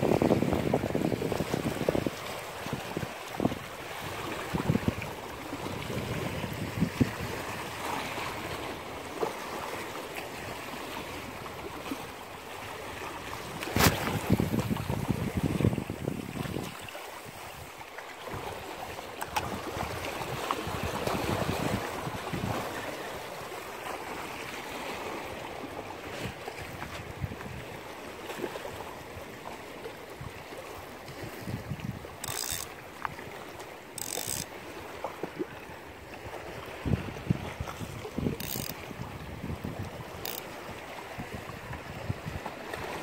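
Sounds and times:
wind and sea hiss: 0.0s - 43.0s
fishing reel clicking: 32.2s - 32.8s, 33.9s - 34.6s, 38.4s - 38.9s, 40.2s - 40.7s.

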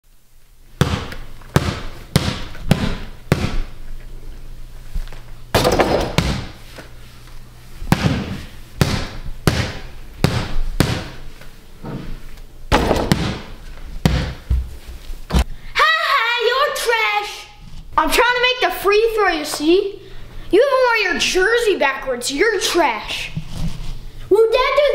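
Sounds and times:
basketball bouncing on hard floor: 0.8s - 3.7s, 5.6s - 6.6s, 7.9s - 11.2s, 12.7s - 15.4s.

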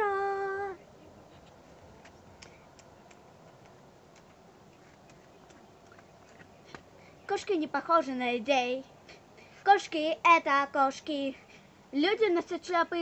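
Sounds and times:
girl's voice: 0.0s - 0.8s, 7.3s - 13.0s.

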